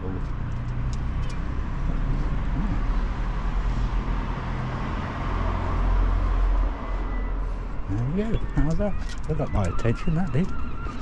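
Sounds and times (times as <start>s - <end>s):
car passing: 0.0s - 11.0s.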